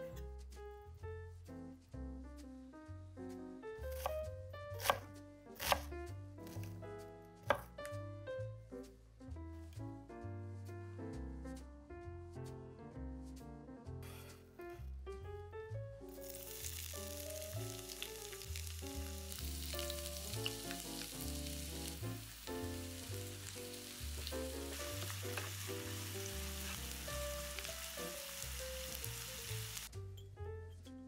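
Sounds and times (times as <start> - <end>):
soft background music: 0.0 - 31.0
food sizzling in oil: 16.1 - 29.9.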